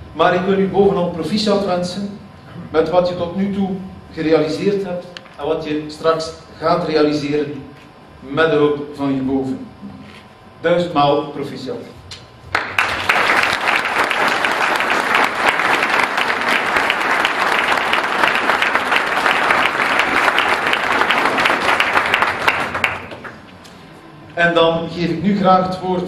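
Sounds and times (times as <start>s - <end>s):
audience applause: 12.5s - 23.4s.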